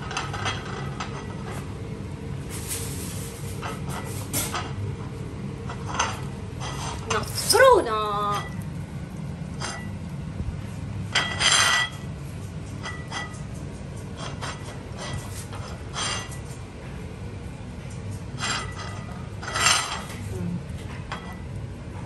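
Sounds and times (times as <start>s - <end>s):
cutlery and dishes clinking: 12.8s - 13.5s, 18.4s - 20.2s.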